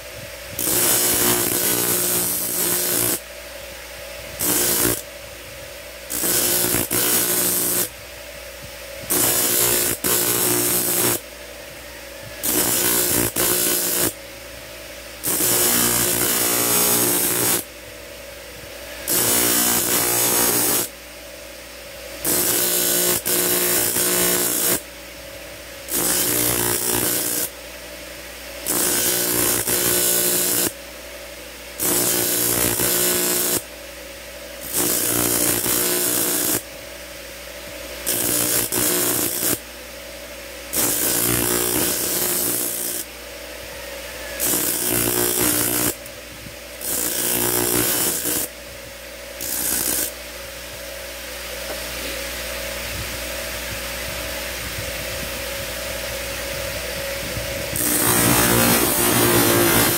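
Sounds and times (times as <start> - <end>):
steel grinding hiss: 0.6 - 3.2, 4.4 - 5.1, 6.1 - 7.9, 9.1 - 11.2, 12.2 - 14.2, 15.2 - 17.7, 18.7 - 21.0, 22.2 - 24.8, 25.9 - 27.6, 28.6 - 30.8, 31.8 - 33.7, 34.6 - 36.7, 38.0 - 39.6, 40.7 - 43.1, 44.1 - 46.1, 46.8 - 48.5, 49.4 - 50.2, 57.7 - 59.9
grinding wheel motor hum: 4.2 - 8.0, 18.5 - 20.9, 40.7 - 48.5, 53.0 - 59.9.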